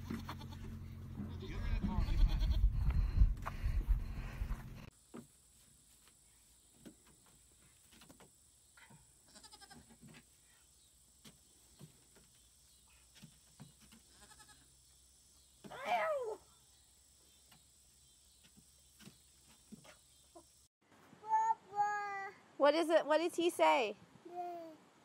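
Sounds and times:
goat bleating: 0.0 - 2.7, 9.3 - 9.9, 14.1 - 14.6.

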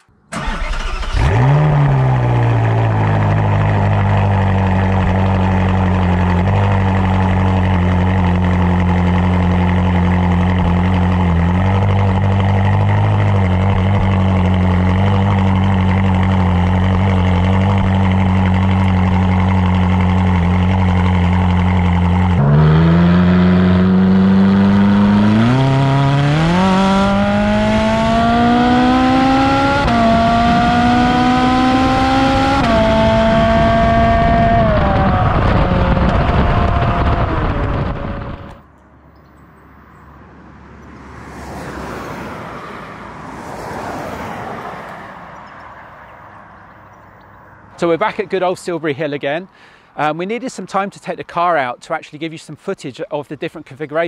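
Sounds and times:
car engine idling: 0.3 - 26.4
car accelerating through gears: 0.4 - 6.8, 10.8 - 38.6.

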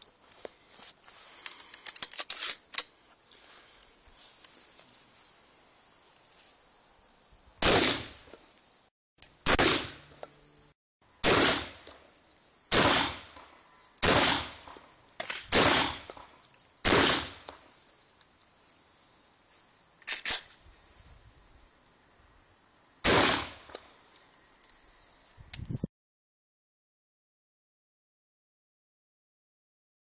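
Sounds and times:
shotgun shots: 7.6 - 8.2, 9.4 - 10.1, 11.2 - 11.8, 12.7 - 13.4, 14.0 - 16.2, 16.8 - 17.5, 23.0 - 23.8.

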